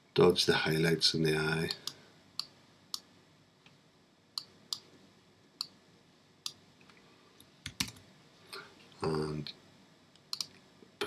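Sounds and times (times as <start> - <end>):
computer mouse clicks: 10.2 - 10.6.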